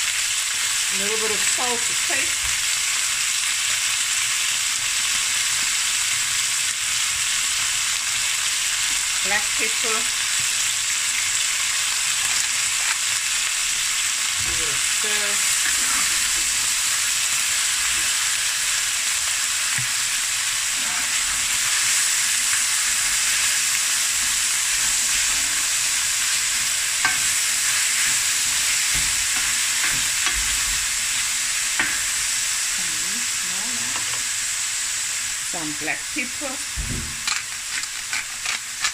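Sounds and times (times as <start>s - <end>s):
meat sizzling in a pan: 0.0s - 38.9s
wooden spatula scraping pan: 14.7s - 16.7s, 24.2s - 26.0s.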